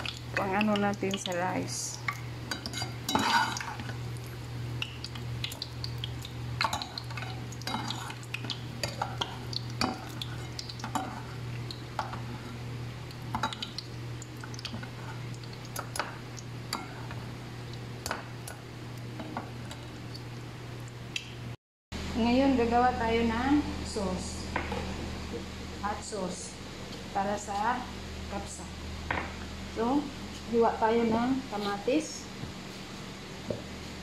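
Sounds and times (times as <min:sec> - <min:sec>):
steady low hum: 0:00.0 - 0:34.0
metal utensil clinking on pot: 0:02.1 - 0:03.9.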